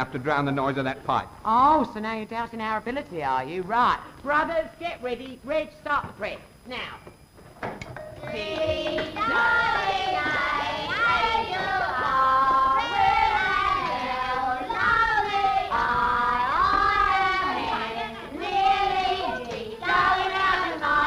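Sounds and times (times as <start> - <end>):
women singing together: 8.2 - 21.0.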